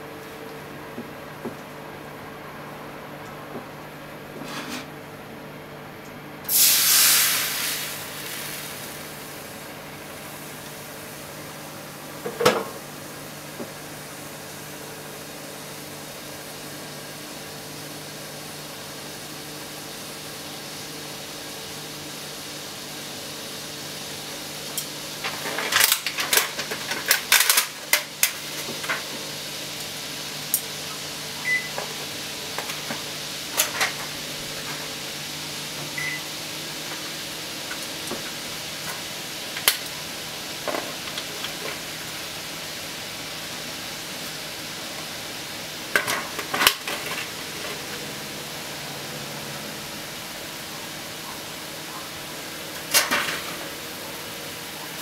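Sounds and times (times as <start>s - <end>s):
liquid hissing in a hot pan: 6.5s - 12.0s, 13.2s - 51.6s
boiling liquid popping and crackling: 24.6s - 31.0s, 36.7s - 42.4s, 45.8s - 47.9s.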